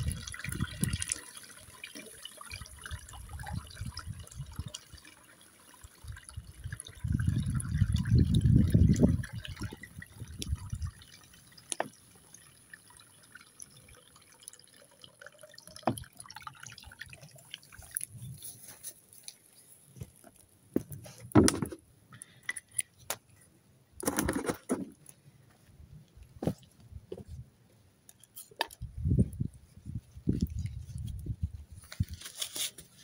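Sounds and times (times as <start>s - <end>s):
water pouring into a pot: 0.0s - 18.2s
water trickling and dripping: 0.0s - 21.0s, 28.2s - 33.0s.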